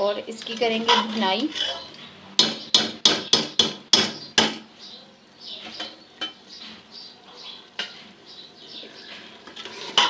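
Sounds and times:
metal spoon clanking on pot: 0.4s - 1.8s, 5.6s - 6.4s
spoon scraping and stirring: 0.4s - 2.1s, 8.8s - 10.0s.

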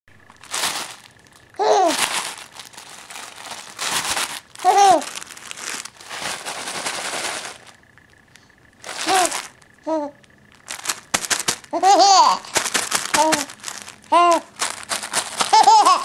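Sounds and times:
crinkly rustling: 0.2s - 8.1s, 8.8s - 16.0s
baby cooing squeals: 1.6s - 2.1s, 4.6s - 5.1s, 9.0s - 10.2s, 14.1s - 14.5s.

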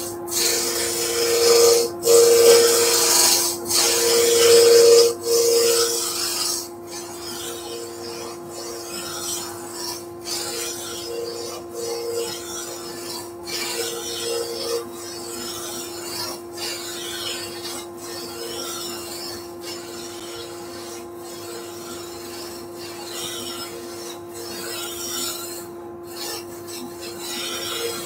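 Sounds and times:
machinery hum: 0.0s - 15.4s
lathe tool cutting wood hiss: 0.3s - 6.7s.

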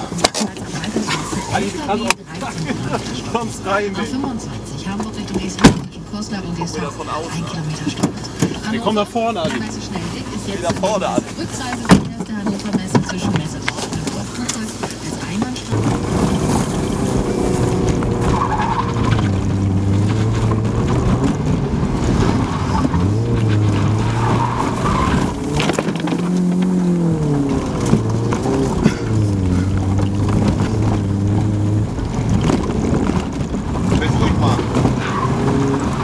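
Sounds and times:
tyres skidding on concrete: 7.1s - 36.0s
car engine revving: 13.4s - 36.0s.

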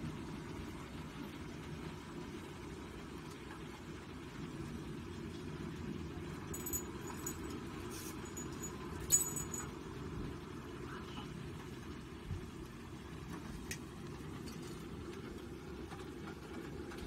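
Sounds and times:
low background rumble: 6.4s - 14.4s
light metallic clinks: 6.5s - 9.8s.

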